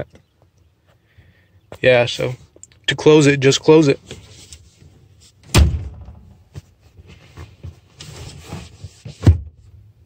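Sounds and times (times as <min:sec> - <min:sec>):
seat rustling and rubbing: 0:04.0 - 0:05.5, 0:06.3 - 0:09.8
seat thumping shut: 0:09.2 - 0:09.6.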